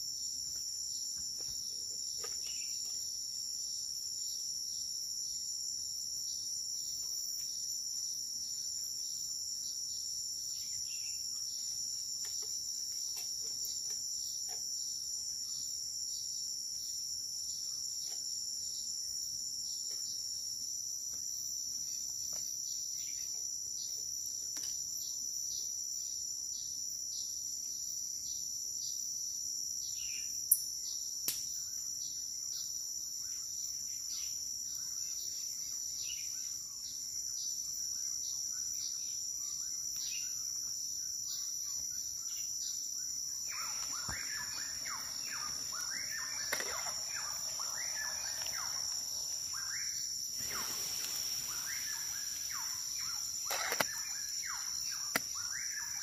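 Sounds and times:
high-pitched insect drone: 32.0s - 56.0s
bird chirping: 41.3s - 56.0s.

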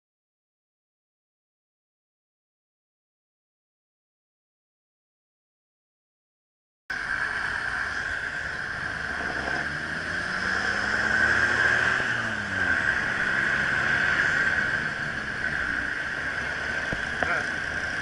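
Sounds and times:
car engines passing: 6.9s - 18.0s
steady high whine: 6.9s - 18.0s.

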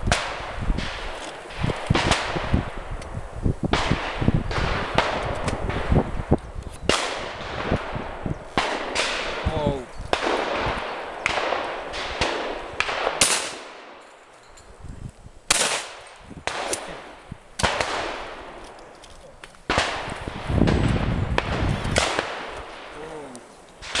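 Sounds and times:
distant shotgun shots: 0.0s - 2.7s, 3.7s - 6.3s, 6.9s - 14.0s, 15.5s - 18.6s, 19.7s - 23.0s, 23.8s - 24.0s
shotgun shots: 0.0s - 2.7s, 6.9s - 14.0s, 15.5s - 18.6s, 19.7s - 23.2s.

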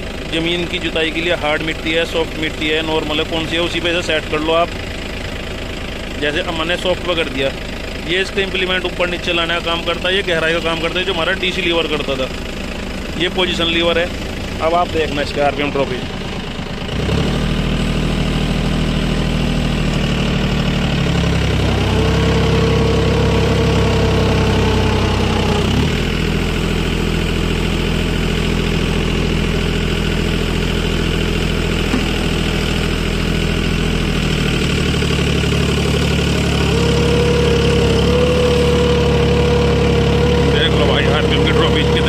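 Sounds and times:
tractor diesel engine running: 0.0s - 42.0s
steady whine: 20.2s - 27.0s.

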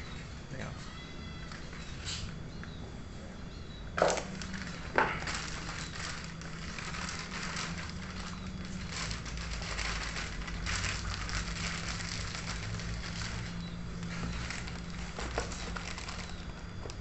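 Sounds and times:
low steady hum: 0.0s - 17.0s
plastic wrapping crinkling: 4.0s - 17.0s.

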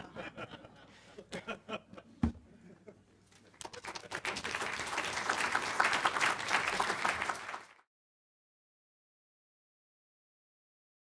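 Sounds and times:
audience applauding: 3.5s - 7.9s.

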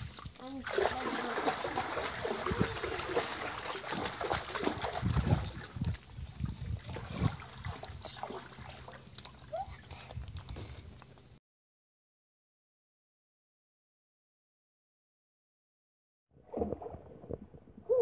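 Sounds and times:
water splashing in paddling pool: 0.0s - 10.0s.

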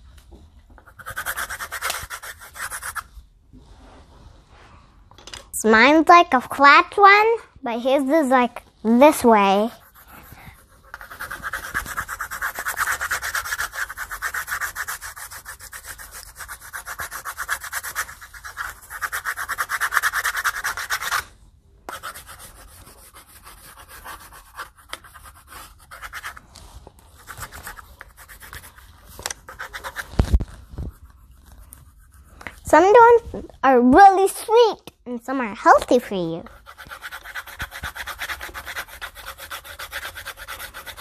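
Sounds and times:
pencil scribbling on paper: 0.8s - 3.1s, 9.4s - 21.2s, 21.9s - 26.4s, 27.1s - 32.4s, 35.8s - 41.0s.

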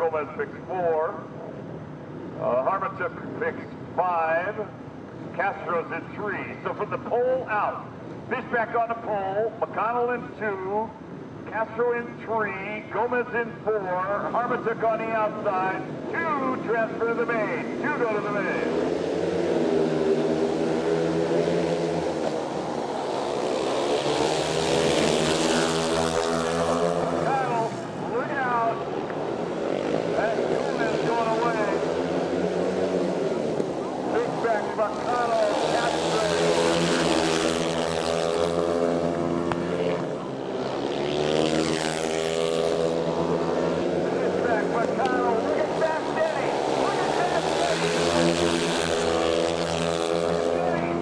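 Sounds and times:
motorcycle engines racing: 0.0s - 51.0s.

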